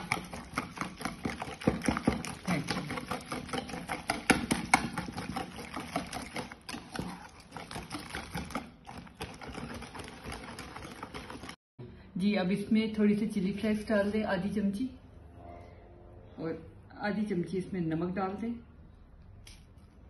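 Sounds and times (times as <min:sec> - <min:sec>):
wire whisk beating eggs in bowl: 0:00.0 - 0:11.6.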